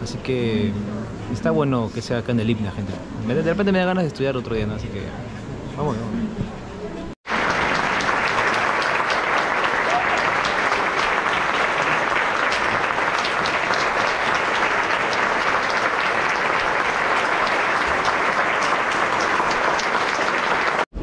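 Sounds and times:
audience applauding: 0:07.2 - 0:20.9.

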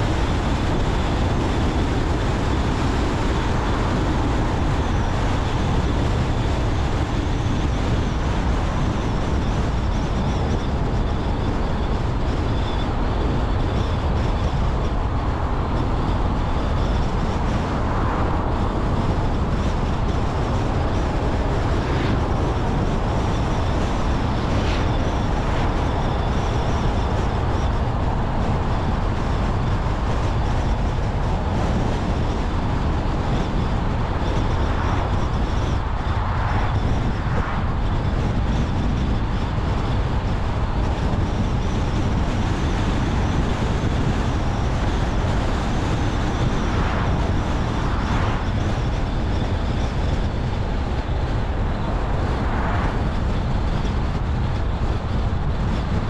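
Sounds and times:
car engine hum: 0:00.0 - 0:56.0
faint high whine: 0:00.3 - 0:40.2.

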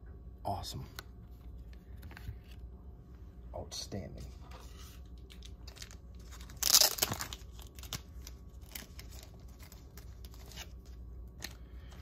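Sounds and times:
plastic packaging ripping: 0:05.3 - 0:11.6.

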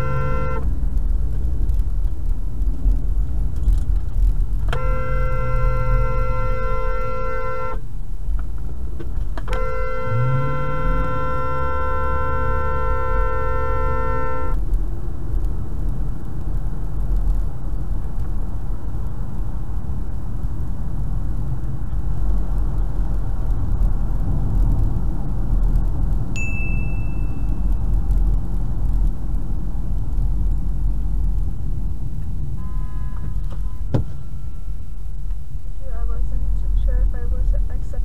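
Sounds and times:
car horn honking: 0:00.0 - 0:00.8, 0:04.6 - 0:07.8, 0:09.4 - 0:14.6, 0:32.5 - 0:35.0
road and engine rumble: 0:00.0 - 0:38.0
high ding: 0:26.4 - 0:27.7.

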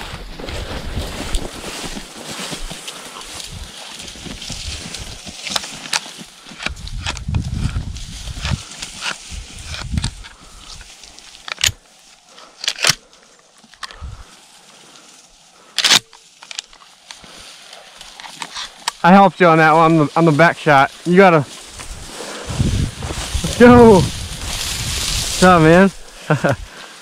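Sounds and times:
dry grass rustling underfoot: 0:00.0 - 0:27.0
shotgun pump clicks: 0:12.6 - 0:13.0, 0:15.8 - 0:16.8.

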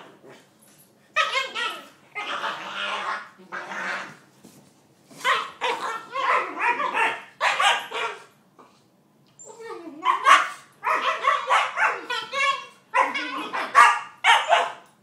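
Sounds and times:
puppies barking and yipping: 0:05.2 - 0:08.4, 0:10.0 - 0:14.9.

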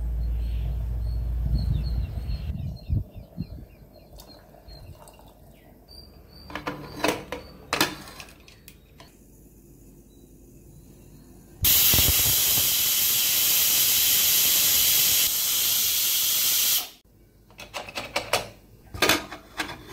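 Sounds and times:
birds chirping: 0:00.0 - 0:07.8
water pouring: 0:04.2 - 0:05.5.

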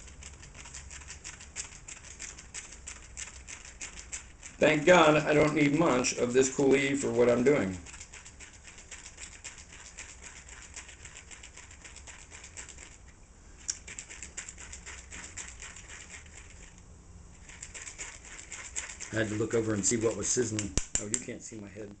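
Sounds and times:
sharp click: 0:20.5 - 0:21.3.

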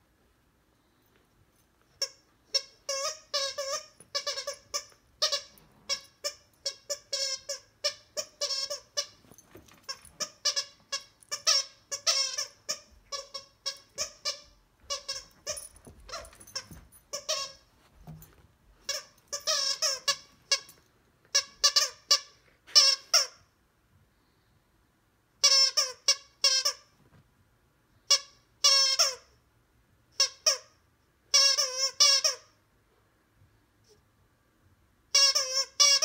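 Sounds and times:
dog toy squeaking: 0:01.9 - 0:18.2, 0:18.8 - 0:23.4, 0:25.4 - 0:26.9, 0:28.1 - 0:29.3, 0:30.2 - 0:32.6, 0:35.1 - 0:36.0.

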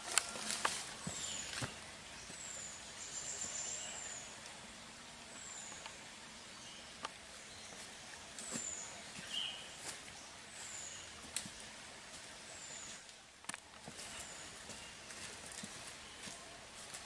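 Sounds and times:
footsteps through undergrowth: 0:00.0 - 0:02.5, 0:07.7 - 0:17.0
leaves rustling: 0:00.0 - 0:06.2, 0:07.0 - 0:17.0.

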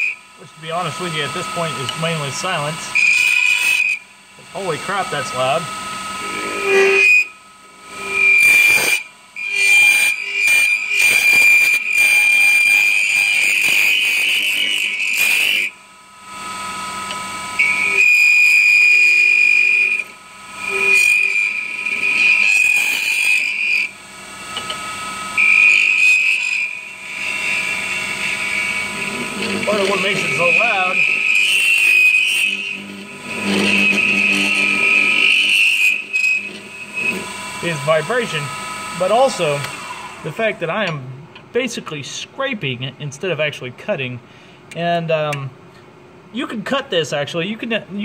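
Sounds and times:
lathe tool squealing on acrylic: 0:00.0 - 0:15.7, 0:17.6 - 0:20.0, 0:20.6 - 0:40.5.

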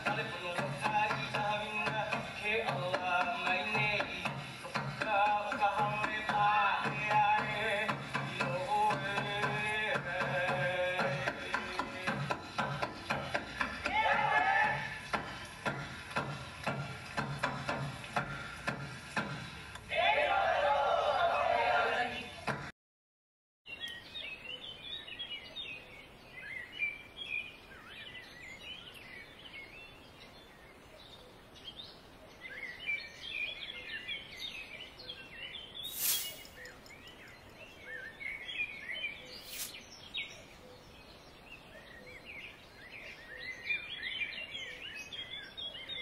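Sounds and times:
birds chirping: 0:00.0 - 0:19.5, 0:23.7 - 0:46.0
short sharp noises: 0:35.8 - 0:36.6.

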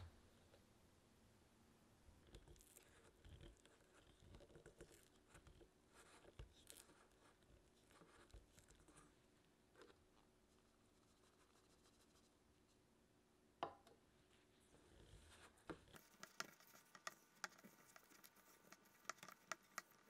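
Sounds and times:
spatula scraping metal bowl: 0:16.0 - 0:20.0.

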